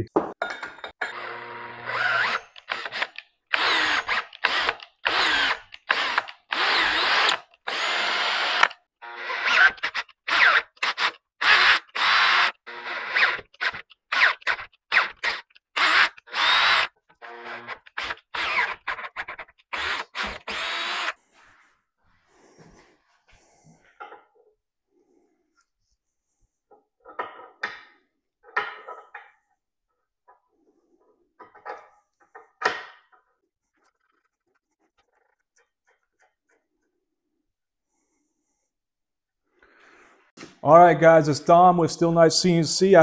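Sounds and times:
power drill in short bursts: 0:01.1 - 0:13.4.

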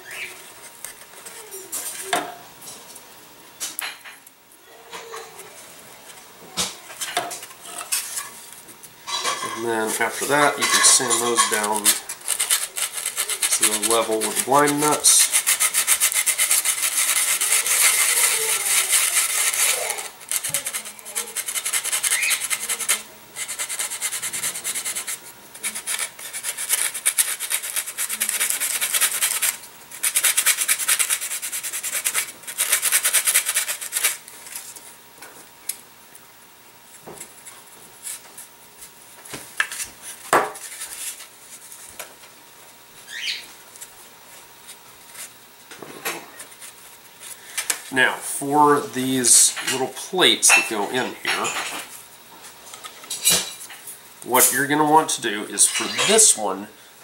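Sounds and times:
sandpaper scraping wood: 0:09.4 - 0:34.7.

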